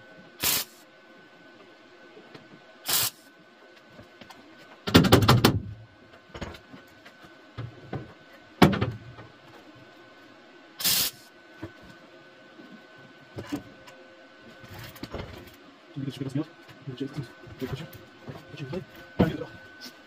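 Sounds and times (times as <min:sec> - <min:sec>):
welding arc crackling hiss: 0:00.4 - 0:00.9, 0:02.8 - 0:03.3, 0:10.8 - 0:11.3.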